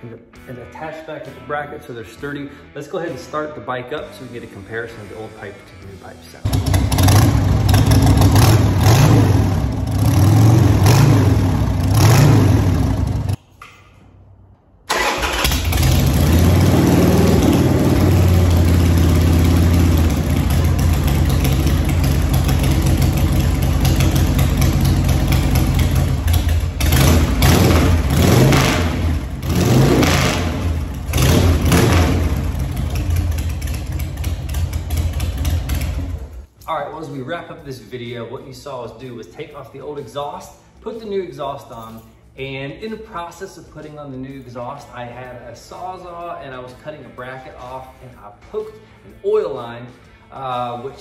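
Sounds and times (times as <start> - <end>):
motorcycle engine revving: 6.4 - 13.4, 14.9 - 36.5.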